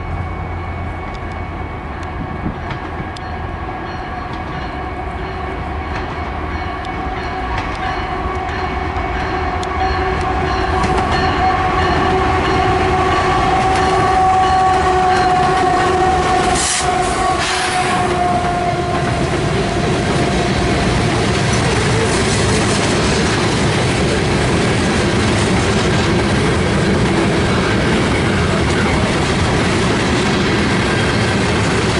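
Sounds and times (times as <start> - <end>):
locomotive engines rumbling: 0.0 - 31.9
train horn chord: 6.9 - 22.4
freight cars rolling: 10.3 - 31.9.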